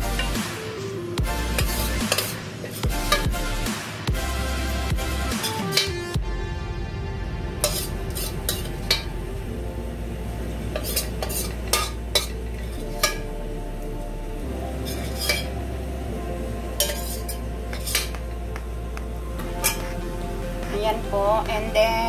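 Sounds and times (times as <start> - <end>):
spoon scraping glass dish: 7.6 - 8.7, 10.8 - 13.2, 14.8 - 15.5, 16.8 - 18.2.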